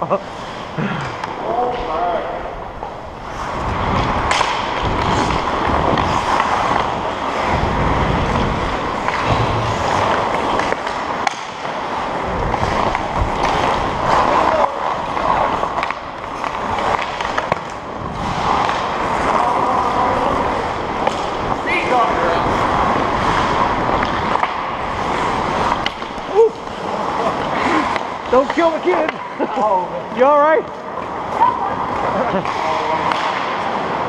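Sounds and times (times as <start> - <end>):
skate blades scraping on ice: 0.1 - 1.9, 2.8 - 34.0
hockey stick and puck clicks: 4.0 - 7.4, 8.3 - 19.6, 21.0 - 21.6, 22.5 - 26.8, 32.3 - 34.0.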